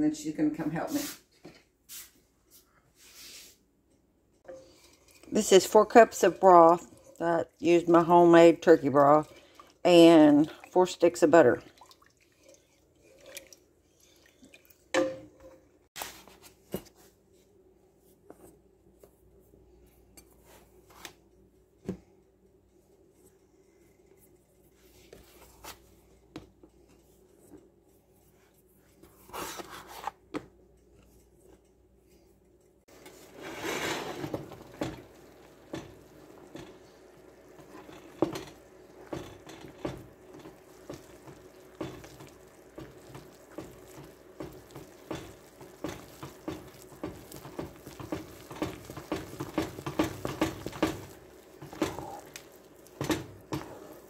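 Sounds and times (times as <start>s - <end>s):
wooden spoon beating dough in pot: 4.4s - 15.6s, 24.2s - 54.0s.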